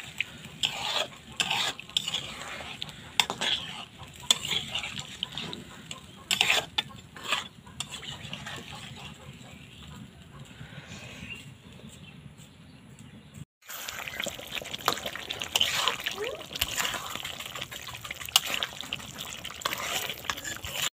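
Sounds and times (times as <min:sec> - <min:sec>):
curry sizzling: 0:00.0 - 0:09.3, 0:13.6 - 0:20.9
metal spatula scraping a wok: 0:00.0 - 0:09.8, 0:14.2 - 0:20.9.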